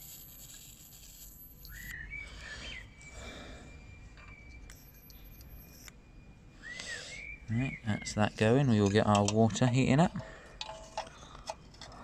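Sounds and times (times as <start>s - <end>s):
birds chirping: 1.6s - 5.5s, 6.8s - 9.1s.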